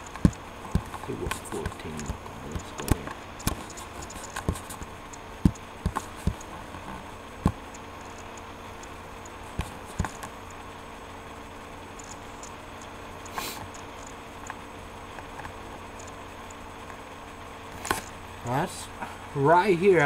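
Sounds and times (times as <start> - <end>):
scattered knocks and clicks: 0.0 - 10.6, 11.9 - 17.0
steady hum: 0.0 - 20.0.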